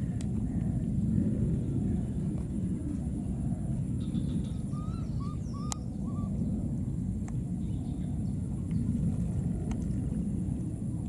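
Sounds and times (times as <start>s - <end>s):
low rumble: 0.0s - 11.0s
chirping animal calls: 4.4s - 6.3s.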